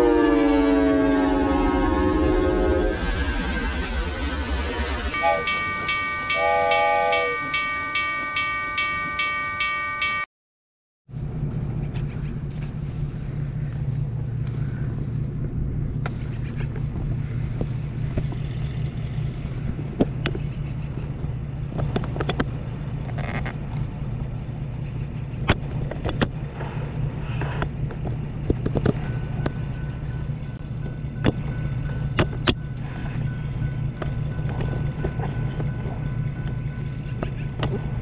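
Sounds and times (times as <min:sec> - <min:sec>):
low engine rumble: 0:11.1 - 0:38.0.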